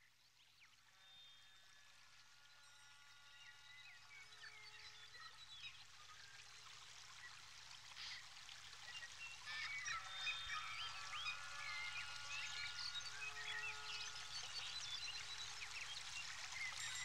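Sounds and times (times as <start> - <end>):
small birds chirping: 3.4 - 17.0.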